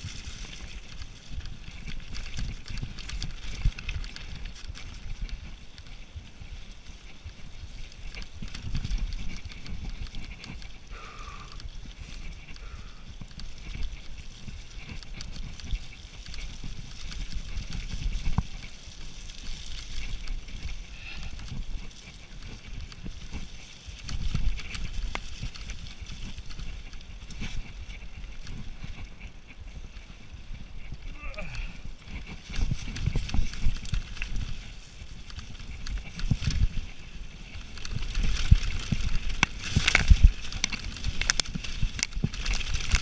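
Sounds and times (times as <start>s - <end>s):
bike chain and frame rattling: 0.0s - 43.0s
bike jolts: 0.0s - 43.0s
wind rumbling on microphone: 0.0s - 43.0s
tyres crunching over stones: 30.8s - 43.0s.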